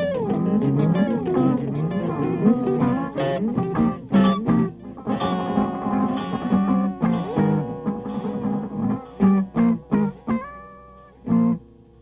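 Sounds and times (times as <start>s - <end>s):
guitar with bending notes: 0.0s - 12.0s.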